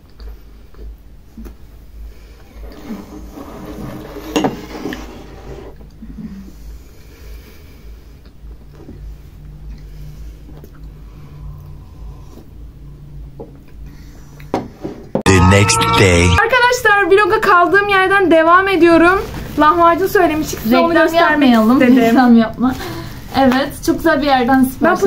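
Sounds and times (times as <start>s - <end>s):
low room hum: 5.2s - 14.6s
people chewing: 8.1s - 12.6s.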